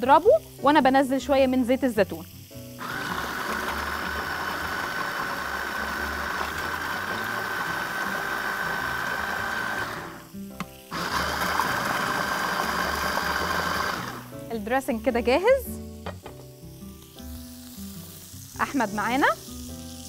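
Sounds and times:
electric blender whining: 2.8 - 10.3, 10.9 - 14.3.

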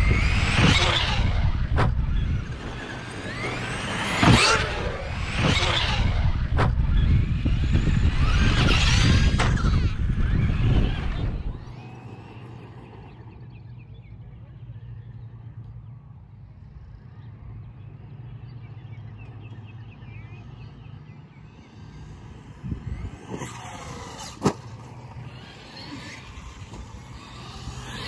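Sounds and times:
electric motor whining: 0.0 - 13.6, 21.7 - 28.0.

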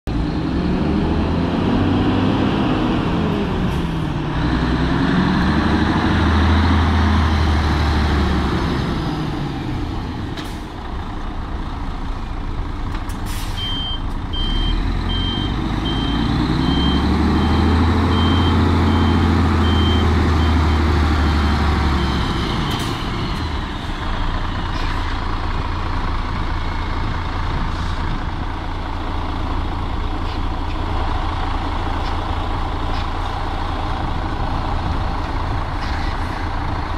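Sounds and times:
truck diesel engine: 0.0 - 36.9
air brake hiss: 13.2 - 13.7
reversing beeper: 13.5 - 24.8.

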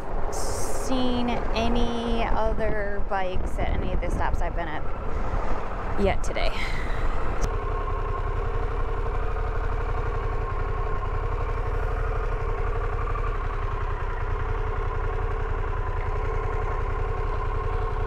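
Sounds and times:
motorcycle engine idling: 4.6 - 18.0.

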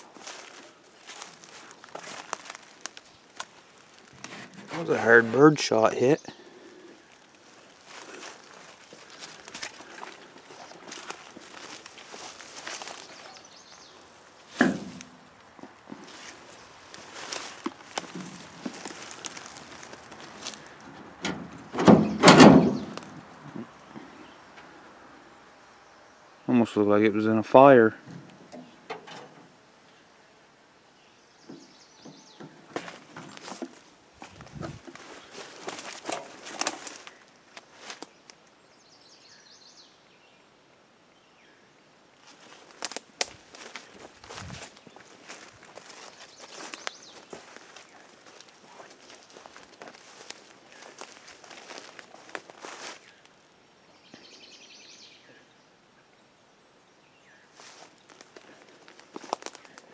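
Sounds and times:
footsteps: 0.0 - 5.7, 6.3 - 24.1, 32.0 - 38.1, 42.2 - 53.2, 57.6 - 59.9
clattering bang with rattle: 21.2 - 23.0.

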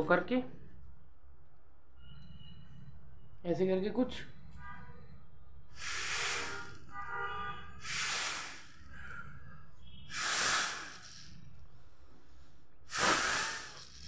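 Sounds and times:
breath puffs blown through tube: 5.7 - 6.8, 7.8 - 11.5, 12.3 - 14.0.

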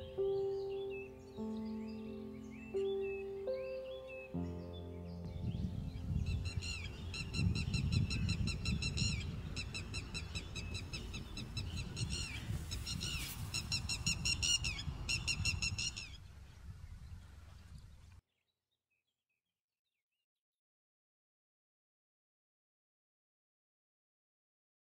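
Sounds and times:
low rumble: 4.5 - 17.5
lapwing calling: 6.3 - 16.2.

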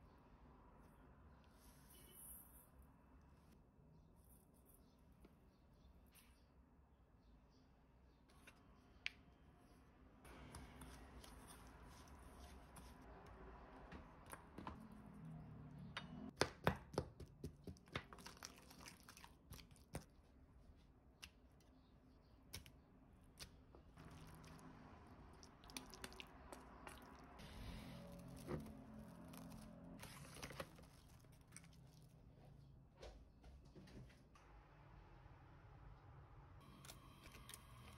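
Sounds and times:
spoons stirring sticky paste: 9.7 - 13.4.

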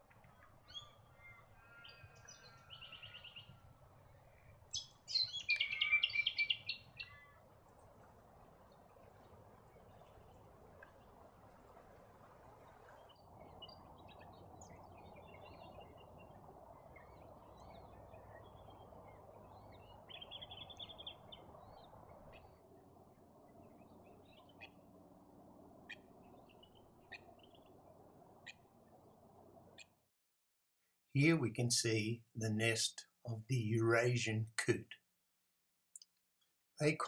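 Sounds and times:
birds chirping: 0.0 - 7.6, 12.6 - 29.9, 31.2 - 35.0.

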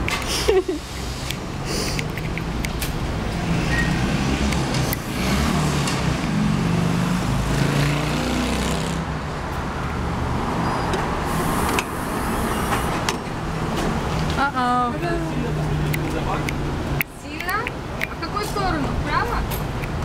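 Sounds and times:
street traffic: 0.0 - 20.0
vehicle engine rumbling: 0.0 - 20.0.

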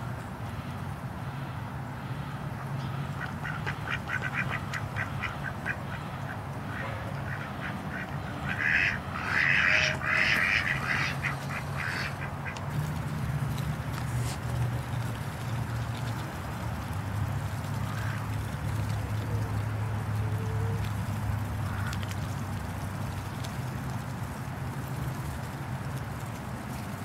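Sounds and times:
ducks quacking: 2.6 - 12.8.

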